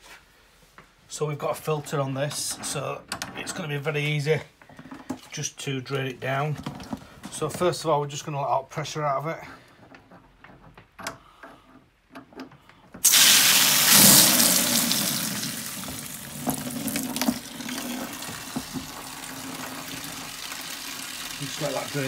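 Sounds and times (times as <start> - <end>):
water splashing into plastic tub: 13.0 - 22.0.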